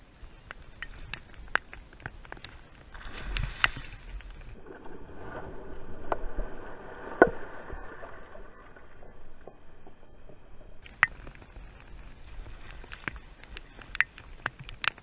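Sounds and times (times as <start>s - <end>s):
fish splashing in water: 2.6s - 4.6s.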